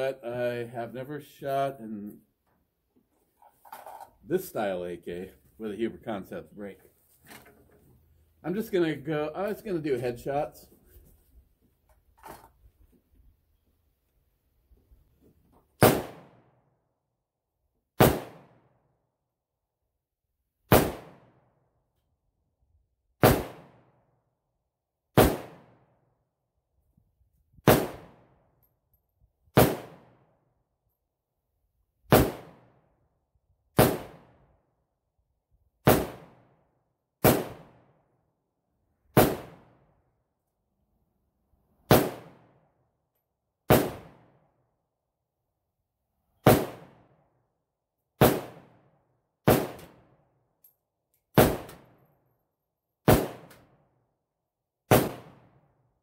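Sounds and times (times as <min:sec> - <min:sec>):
rifle single shots: 0:15.8 - 0:16.5, 0:18.0 - 0:18.7, 0:20.7 - 0:21.4, 0:23.2 - 0:23.9, 0:25.2 - 0:25.8, 0:27.6 - 0:28.3, 0:29.6 - 0:30.2, 0:32.1 - 0:32.7, 0:33.8 - 0:34.4, 0:35.8 - 0:36.5, 0:37.2 - 0:37.9, 0:39.2 - 0:39.8, 0:41.9 - 0:42.5, 0:43.7 - 0:44.4, 0:46.4 - 0:47.1, 0:48.2 - 0:48.8, 0:49.4 - 0:50.1, 0:51.4 - 0:51.9, 0:53.1 - 0:53.7, 0:54.9 - 0:55.6.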